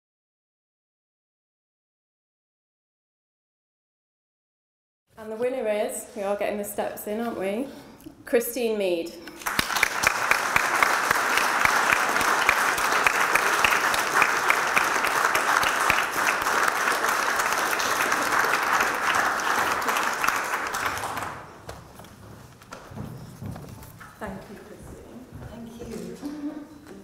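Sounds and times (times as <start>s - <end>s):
audience applauding: 9.4s - 21.8s.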